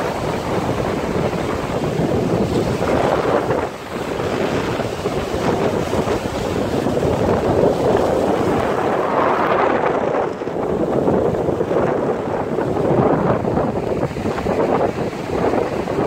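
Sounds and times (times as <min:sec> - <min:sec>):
surf breaking over rocks: 0:00.0 - 0:16.0
wind buffeting microphone: 0:00.0 - 0:16.0.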